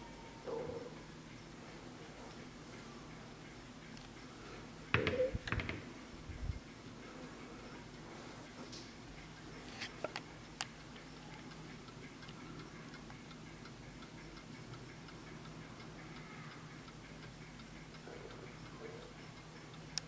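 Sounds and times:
clock ticking faintly: 0.0s - 5.0s, 6.3s - 20.0s.

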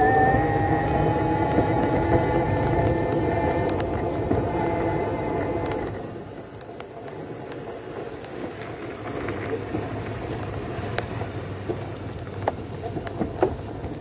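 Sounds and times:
motorcycle engine passing: 0.0s - 6.3s
vehicle rumbling on rough road: 0.0s - 14.0s.

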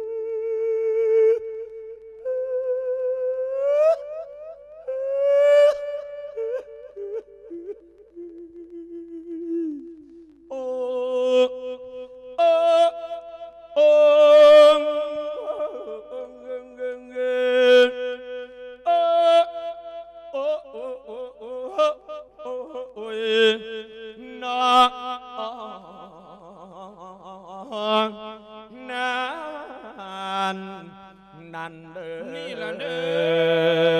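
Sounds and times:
man chanting through microphone: 20.4s - 33.9s.

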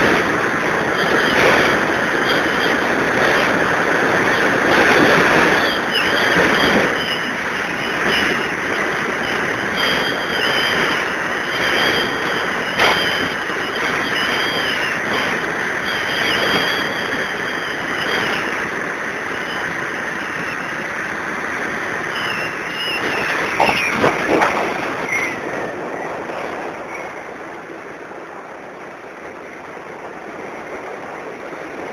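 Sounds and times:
faint wavering high whine: 0.0s - 30.8s
wind and road noise: 0.0s - 31.9s.

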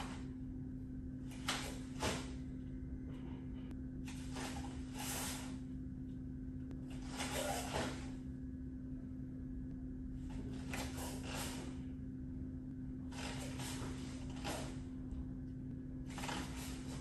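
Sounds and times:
steady low hum: 0.0s - 17.0s
bare feet brushing foam mat: 1.3s - 2.4s, 4.1s - 5.6s, 6.9s - 8.2s, 10.3s - 11.8s, 13.1s - 14.9s, 16.1s - 17.0s
uniform swishing: 1.3s - 2.4s, 4.1s - 5.6s, 7.0s - 8.2s.

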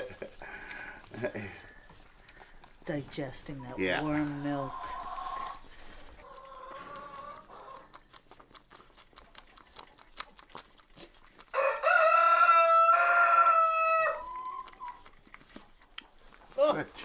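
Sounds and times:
lamb sucking on bottle nipple: 0.0s - 3.6s, 4.2s - 17.0s
rooster crowing: 11.5s - 14.7s.

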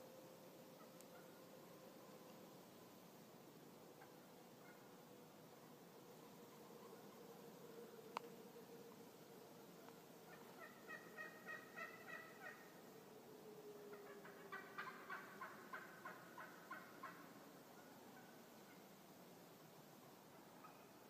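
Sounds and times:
wild turkey calling: 0.8s - 1.4s, 4.0s - 4.9s, 10.3s - 12.8s, 13.9s - 18.9s, 20.6s - 21.0s.

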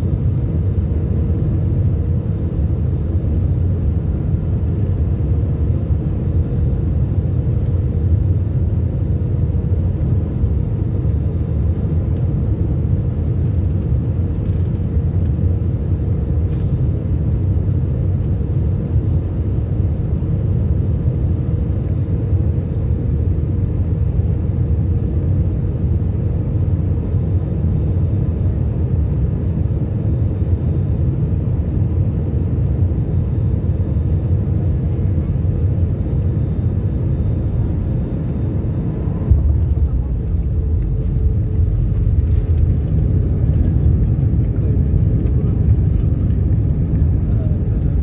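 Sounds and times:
airliner cabin engine rumble: 0.0s - 48.0s
wheels rumbling on runway: 9.5s - 19.5s, 33.8s - 48.0s.

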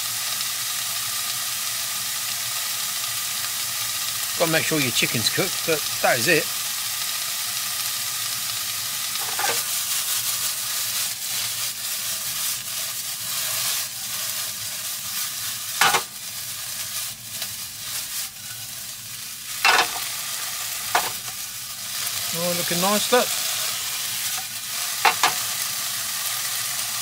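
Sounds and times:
chicken sizzling in a frying pan: 0.0s - 27.0s
pan clanking against burner: 9.2s - 9.7s, 15.8s - 16.1s, 19.6s - 20.0s, 20.9s - 21.3s, 25.0s - 25.4s.

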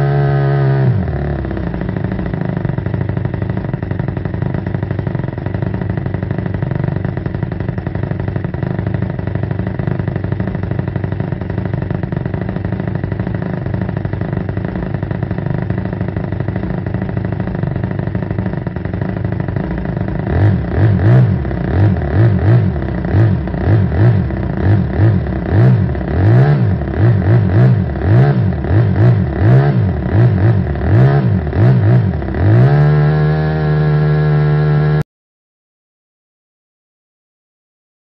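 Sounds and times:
model engine revving: 19.6s - 35.0s.

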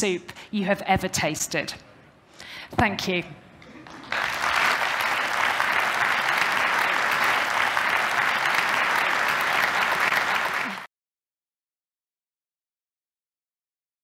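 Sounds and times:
audience applauding: 3.8s - 10.9s.

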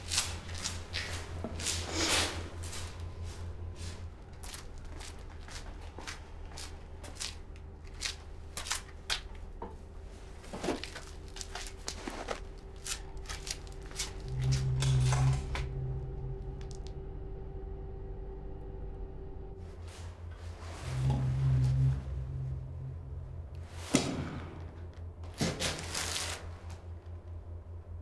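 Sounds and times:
steady low hum: 0.0s - 28.0s
sack rustling: 10.5s - 14.2s
deep low tone: 12.2s - 28.0s.

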